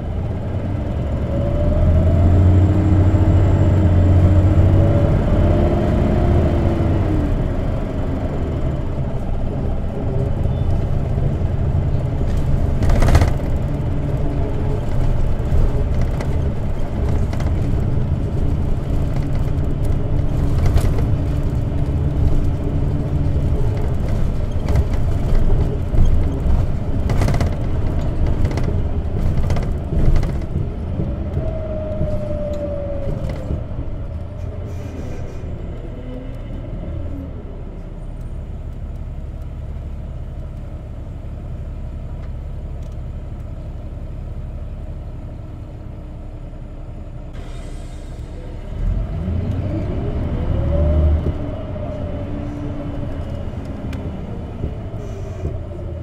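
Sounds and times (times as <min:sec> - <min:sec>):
bus engine and road rumble: 0:00.0 - 0:56.0
knocks and rattles: 0:11.9 - 0:31.1.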